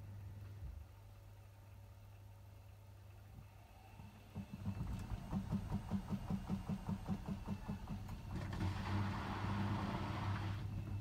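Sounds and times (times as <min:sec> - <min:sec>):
washing machine motor pulsing: 0:03.6 - 0:11.0.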